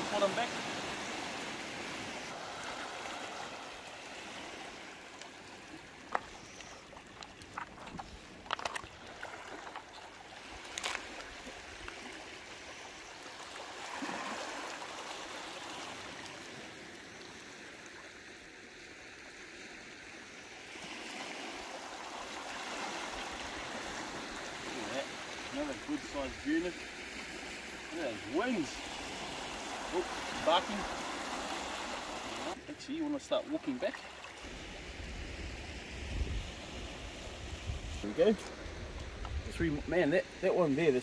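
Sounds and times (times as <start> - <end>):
small waves on stony beach: 0.0 - 41.0.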